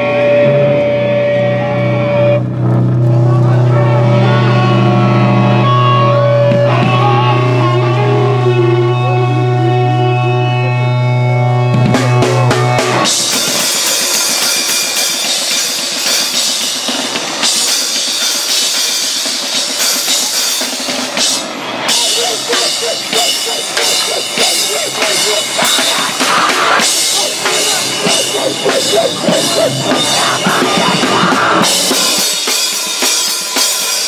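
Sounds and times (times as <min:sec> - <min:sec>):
bass guitar: 0:00.0 - 0:13.3, 0:21.8 - 0:32.5
rock band playing fast: 0:00.0 - 0:34.0
drum kit with cymbals: 0:11.9 - 0:34.0.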